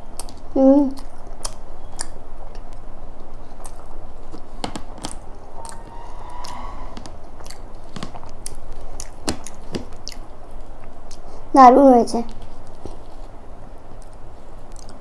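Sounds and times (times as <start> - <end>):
mouth clicks and smacks: 0.1 - 5.2, 7.4 - 11.3, 14.0 - 15.0
close chewing: 0.2 - 5.2, 14.0 - 15.0.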